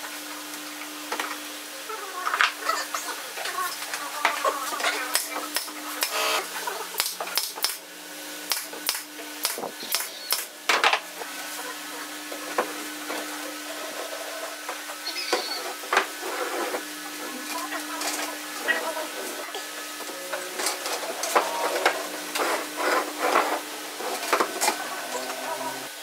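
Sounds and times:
nail gun firing into wood: 0:07.0 - 0:07.8, 0:08.5 - 0:10.5.

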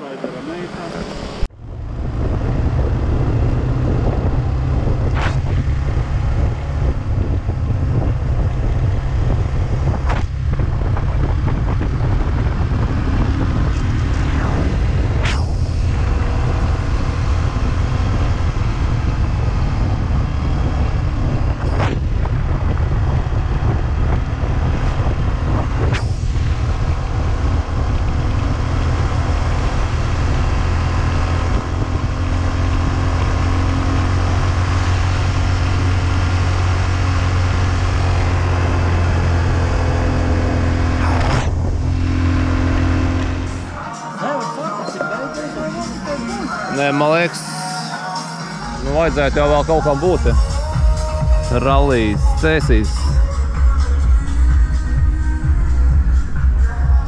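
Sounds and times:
wind rumble on microphone: 0:01.0 - 0:43.8, 0:48.8 - 0:57.0
motorcycle engine running: 0:01.5 - 0:43.8, 0:48.8 - 0:57.0.

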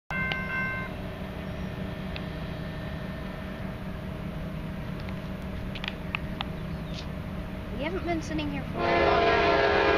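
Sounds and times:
faint high chirp: 0:00.1 - 0:01.8
low mechanical hum: 0:00.2 - 0:08.8.

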